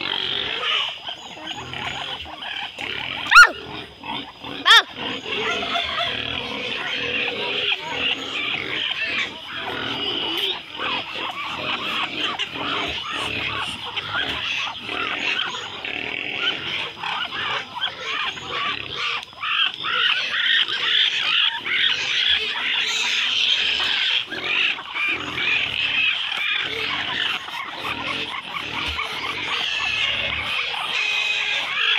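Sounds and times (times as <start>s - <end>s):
poultry calling: 0.0s - 31.9s.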